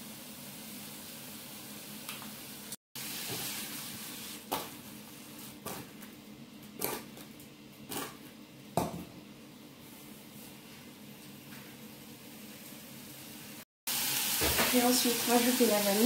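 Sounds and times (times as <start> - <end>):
faint hiss of cooking fruit: 0.0 - 5.8, 9.8 - 16.0.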